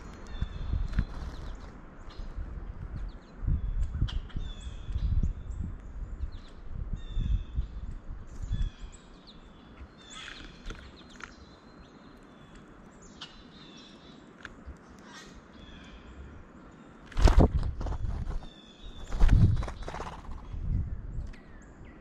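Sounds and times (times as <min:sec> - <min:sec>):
songbirds chirping and whistling: 0:00.0 - 0:22.0.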